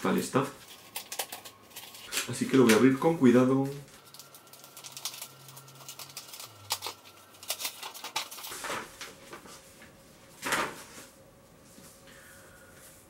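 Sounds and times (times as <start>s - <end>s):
paper crinkling and rustling: 0.4s - 2.8s, 3.6s - 11.2s.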